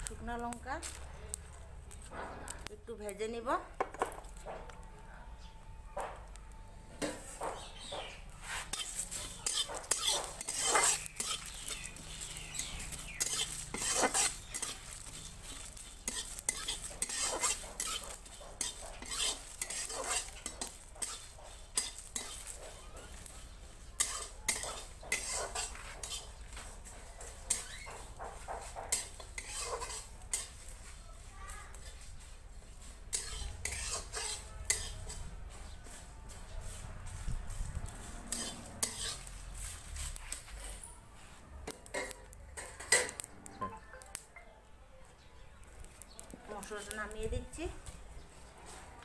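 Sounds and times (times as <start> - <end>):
spices stirred and roasting: 0.0 - 44.4, 45.1 - 49.0
metal spatula scraping a steel pan: 7.0 - 30.9, 32.7 - 36.0, 37.6 - 40.9.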